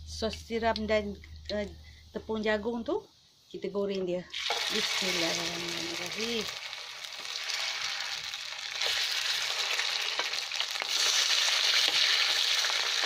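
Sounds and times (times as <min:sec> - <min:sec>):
chicken sizzling in hot oil: 0:04.3 - 0:13.0.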